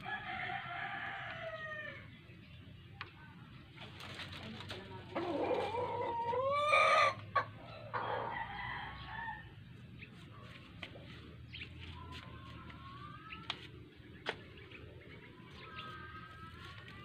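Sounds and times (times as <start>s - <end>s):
rooster crowing: 0.0s - 2.1s.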